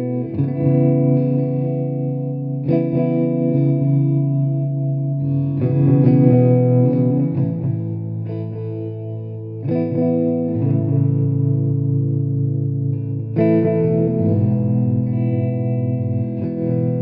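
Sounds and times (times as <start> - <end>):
slow instrumental sustained chords: 0.0 - 17.0.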